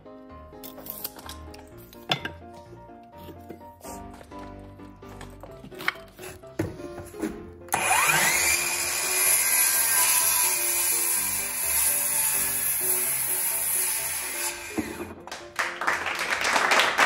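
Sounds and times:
circular saw cutting wood: 0:07.7 - 0:15.2.

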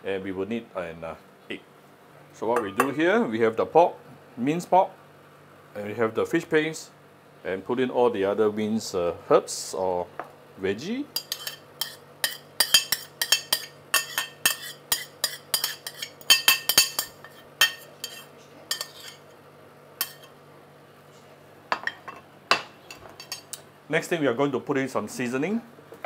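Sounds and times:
spoon scraping and clinking on plate: 0:11.2 - 0:19.3, 0:20.0 - 0:20.3, 0:21.7 - 0:23.6.

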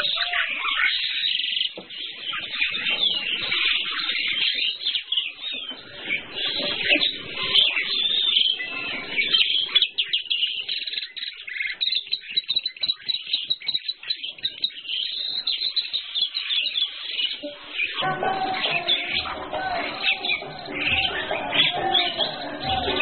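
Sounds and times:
starlings singing and chattering: 0:00.0 - 0:23.0.

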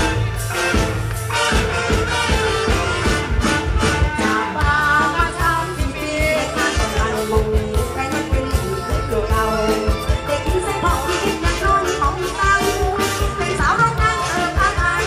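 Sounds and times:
amplified drums and band: 0:00.0 - 0:15.0
woman singing into a microphone: 0:04.2 - 0:15.0.

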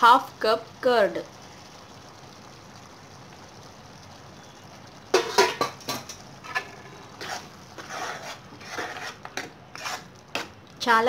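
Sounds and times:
faint steady hiss: 0:00.0 - 0:11.0
metal spoon scraping a pan: 0:05.1 - 0:10.6.

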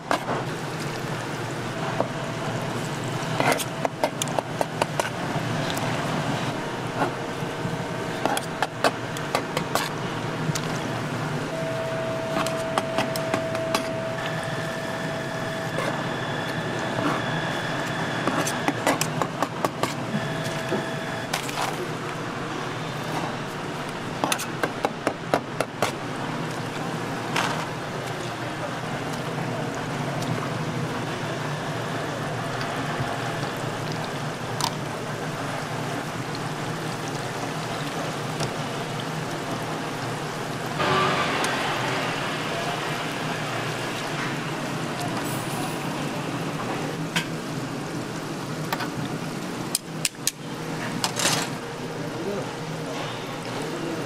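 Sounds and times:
oil sizzling in deep fryer: 0:00.1 - 0:11.6, 0:25.9 - 0:54.0
faint steady whine: 0:10.0 - 0:18.8.

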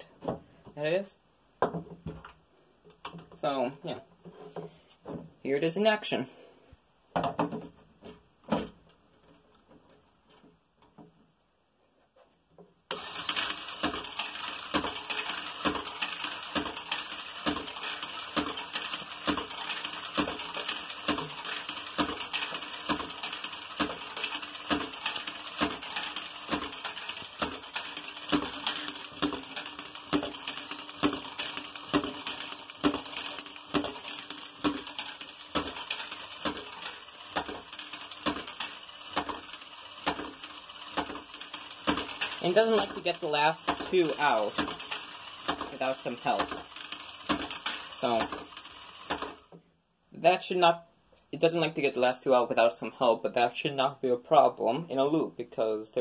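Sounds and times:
plastic balls clattering: 0:12.9 - 0:49.5
motor turning mechanism: 0:12.9 - 0:49.6.

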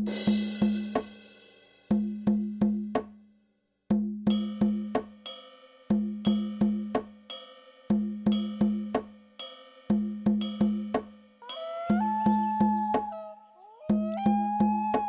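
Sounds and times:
low percussive notes: 0:09.9 - 0:15.0.

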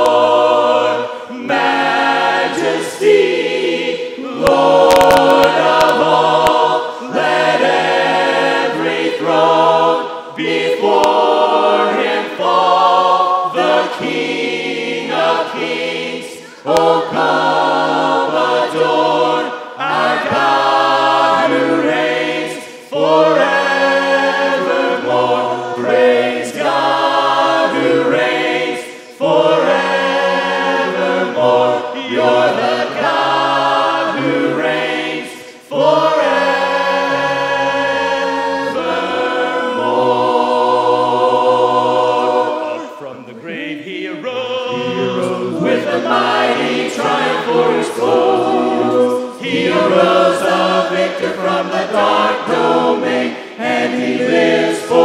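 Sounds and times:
group singing a hymn a cappella: 0:00.0 - 0:55.0
singers breathing: 0:16.4 - 0:16.7.

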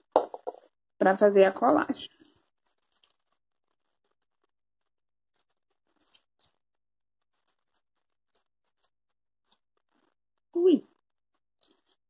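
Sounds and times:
soft crackles: 0:00.6 - 0:12.0
fingers handling foam: 0:02.2 - 0:10.2.

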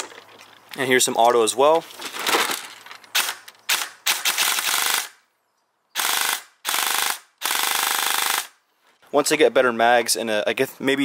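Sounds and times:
airsoft gun firing bursts: 0:03.2 - 0:05.2, 0:06.0 - 0:08.6.

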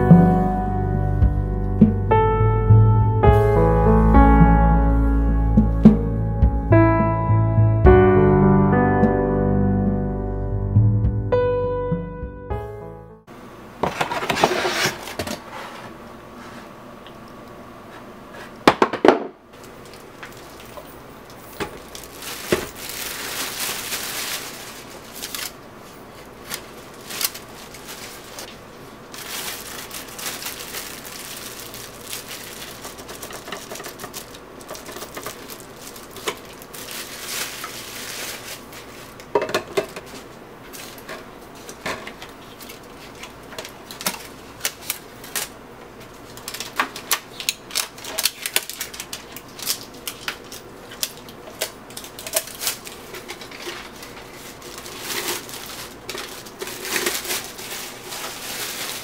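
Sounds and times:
plastic wrapping crinkling: 0:19.6 - 0:59.0.

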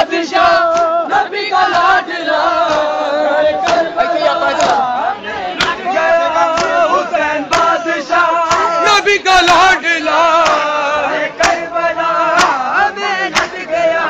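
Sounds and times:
men chanting together: 0:00.0 - 0:14.0
chest-beating slaps: 0:00.5 - 0:03.0, 0:03.6 - 0:04.9, 0:05.6 - 0:05.9, 0:06.5 - 0:06.8, 0:07.5 - 0:07.8, 0:08.4 - 0:08.8, 0:10.3 - 0:10.7, 0:11.4 - 0:11.7, 0:12.3 - 0:13.7.

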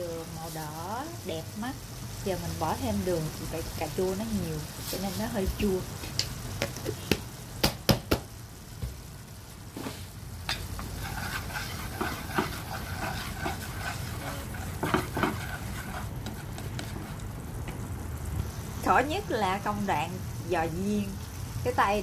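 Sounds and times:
sauce cooking in a frying pan: 0:00.0 - 0:22.0
wooden utensil stirring: 0:10.8 - 0:17.3.

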